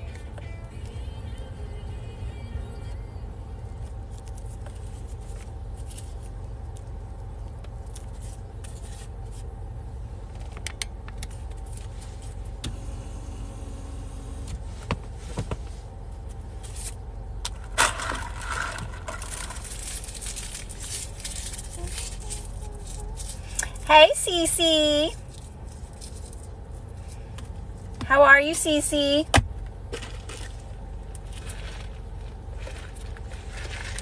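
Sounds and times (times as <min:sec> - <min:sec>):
car engine rumble inside cabin: 0:00.0 - 0:34.0
rustling scrape: 0:08.0 - 0:09.5, 0:14.6 - 0:16.0, 0:17.7 - 0:23.9, 0:30.0 - 0:34.0
clicks and rustles: 0:16.6 - 0:23.9.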